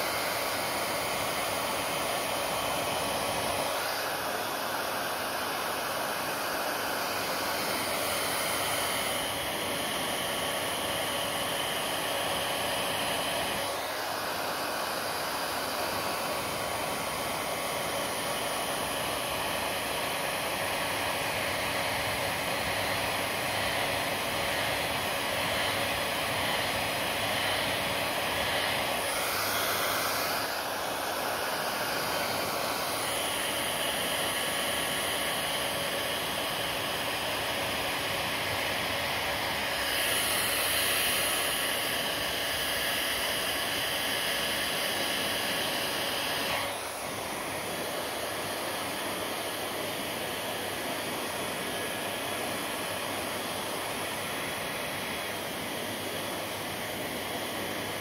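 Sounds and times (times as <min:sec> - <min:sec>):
hair dryer blowing: 0:00.0 - 0:58.0.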